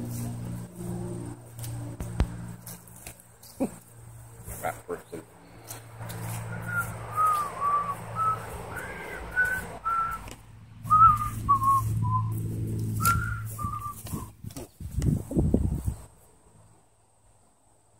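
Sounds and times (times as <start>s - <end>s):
man whistling a tune: 6.5s - 10.2s, 10.9s - 12.3s, 13.0s - 14.3s.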